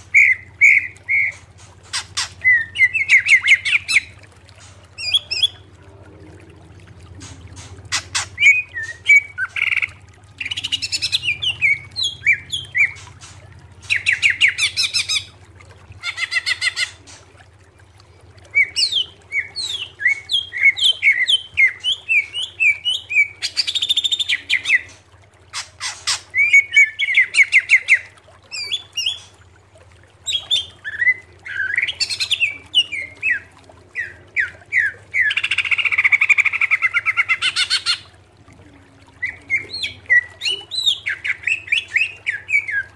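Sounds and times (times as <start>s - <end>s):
bird singing whistles and trills: 0.1s - 4.1s, 8.1s - 13.0s, 39.2s - 42.9s.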